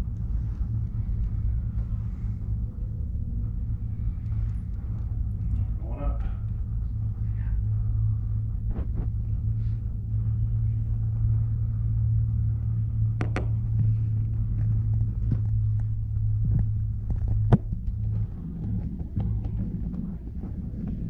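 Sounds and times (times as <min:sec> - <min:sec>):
gondola cabin rumble: 0:00.0 - 0:21.0
faint clicks and knocks: 0:11.0 - 0:21.0.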